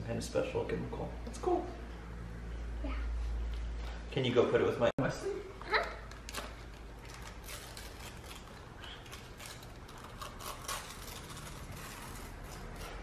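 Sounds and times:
wrapping paper crinkling and tearing: 6.1 - 13.0.

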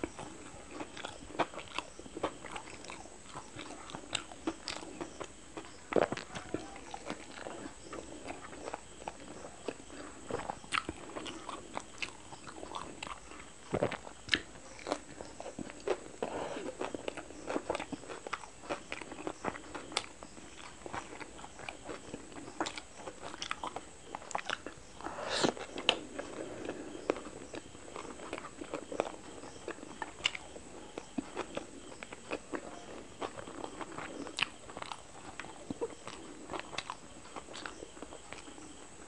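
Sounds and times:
chewing and biting food: 0.0 - 39.0.

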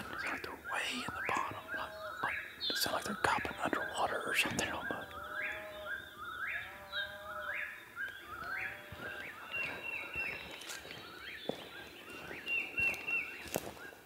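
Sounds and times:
bird repeating rising phrase: 0.0 - 6.4
birds singing: 0.0 - 14.0.

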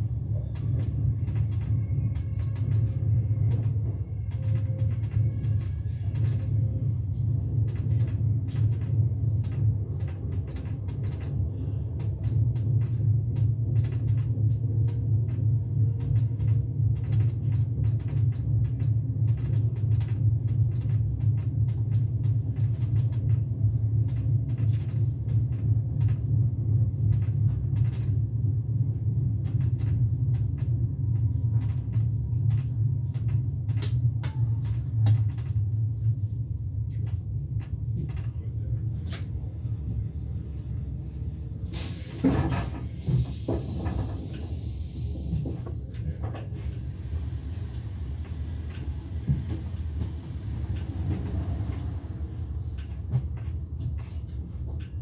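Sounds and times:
train rumbling: 0.0 - 55.0
small clicks and knocks: 7.6 - 11.4, 12.0 - 26.3, 29.4 - 36.2.

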